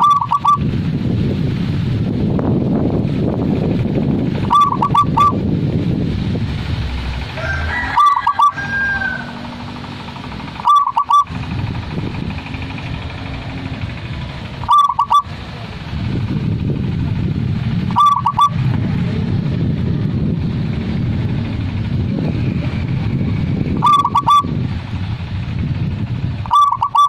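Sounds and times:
dove cooing: 0.0s - 0.6s, 4.4s - 5.4s, 7.4s - 9.7s, 10.5s - 11.5s, 14.5s - 15.4s, 17.8s - 18.6s, 23.8s - 24.5s, 26.4s - 27.0s
steady low rumble: 0.0s - 27.0s.

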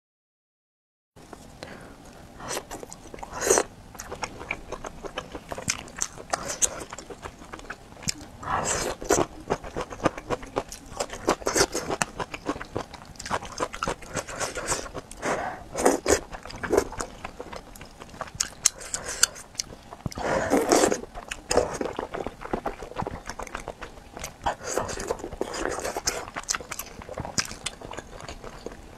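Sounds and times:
wet chewing and crunching: 1.2s - 28.9s
slurping noodles: 13.8s - 17.0s, 20.2s - 23.2s.

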